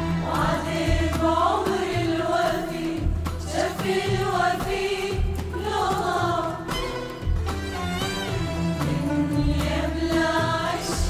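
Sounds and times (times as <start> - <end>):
women's choir singing: 0.0 - 6.8, 8.8 - 11.0
orchestra with violins: 6.7 - 9.2.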